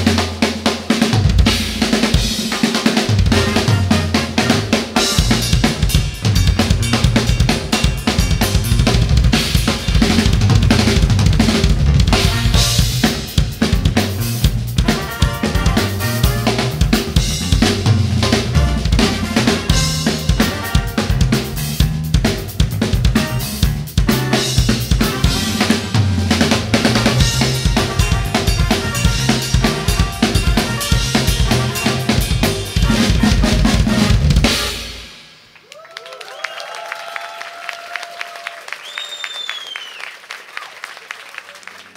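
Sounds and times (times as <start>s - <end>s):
snare drum: 0.0s - 23.4s, 24.0s - 35.3s
crowd cheering: 35.5s - 41.9s.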